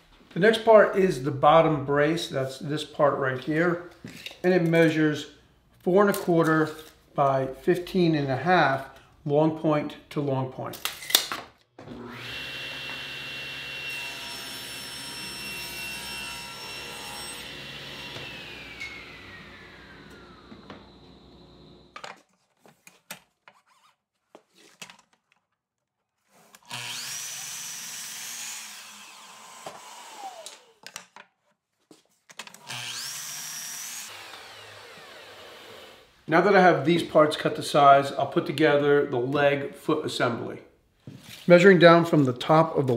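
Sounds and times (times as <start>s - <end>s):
table saw cutting board: 11.8s - 22.0s, 26.3s - 30.8s, 32.5s - 36.2s
miter saw whine: 11.9s - 22.0s.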